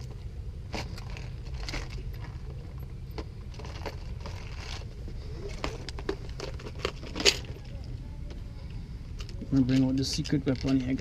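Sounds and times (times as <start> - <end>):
fishing tackle clicks and rattles: 5.5 - 7.7, 9.2 - 11.0.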